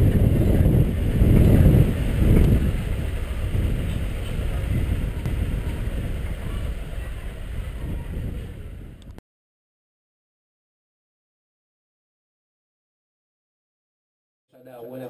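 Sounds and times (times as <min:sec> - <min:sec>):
car engine and road rumble: 0:00.0 - 0:09.2
wind buffeting microphone: 0:00.0 - 0:09.2.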